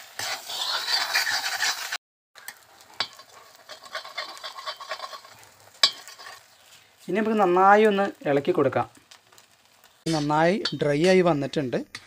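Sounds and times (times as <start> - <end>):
metal spatula scraping a pan: 0.0 - 2.0, 3.0 - 6.8, 10.1 - 11.3
egg sizzling in a pan: 0.0 - 11.7.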